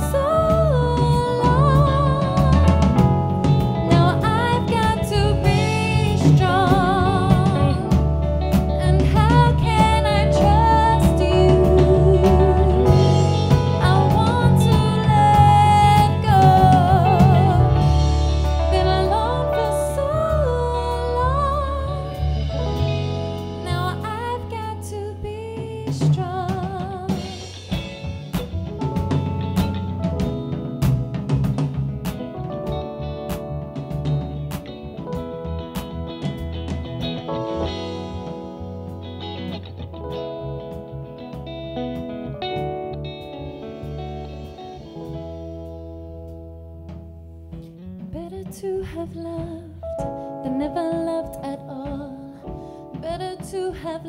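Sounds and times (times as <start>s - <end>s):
woman singing with vibrato: 0.0s - 2.8s, 3.9s - 8.0s, 8.8s - 13.2s, 13.8s - 18.0s, 18.7s - 22.4s, 23.6s - 27.5s, 48.2s - 49.8s, 50.4s - 54.0s
drum kit hits: 0.0s - 19.8s, 26.0s - 48.5s
electric bass guitar: 0.0s - 54.0s
live band playing: 0.0s - 54.0s.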